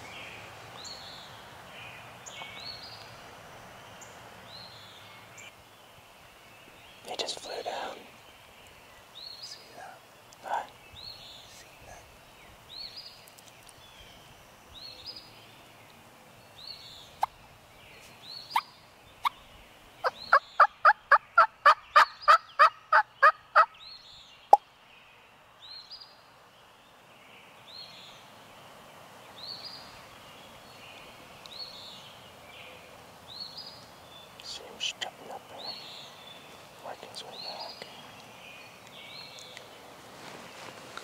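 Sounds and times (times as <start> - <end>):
songbird chirping: 0.0 - 41.0
turkey yelping: 20.6 - 23.7.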